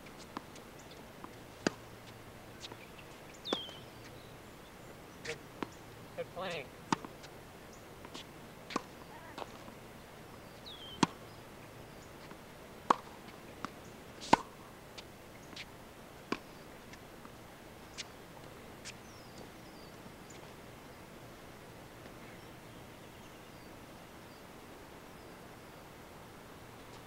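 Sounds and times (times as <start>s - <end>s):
tennis balls hit with rackets: 0.4s - 2.9s, 3.5s - 4.1s, 5.2s - 7.4s, 8.0s - 9.8s, 10.8s - 11.4s, 12.2s - 15.7s
bird chirps: 2.7s - 4.4s, 10.3s - 12.1s.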